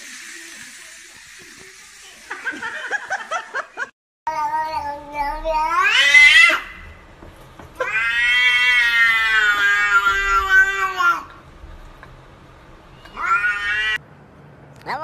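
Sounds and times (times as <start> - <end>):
cat meowing: 4.5 - 6.9, 7.8 - 11.3, 13.0 - 14.0.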